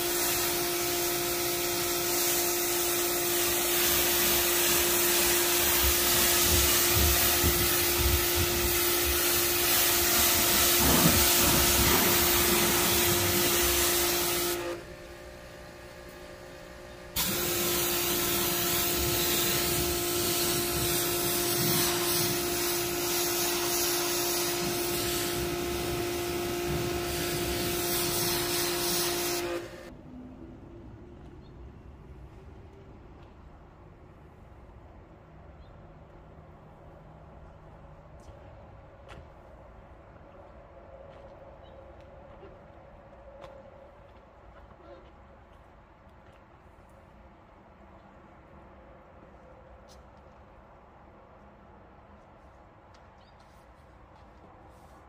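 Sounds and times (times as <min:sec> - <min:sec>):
pressure washer spray hissing: 0:00.0 - 0:14.8, 0:17.2 - 0:29.9.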